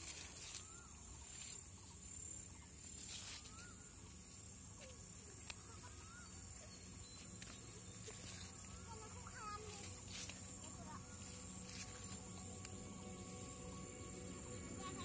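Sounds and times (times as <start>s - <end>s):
high insect buzz: 0.0s - 15.0s
bird chirps: 0.3s - 10.0s.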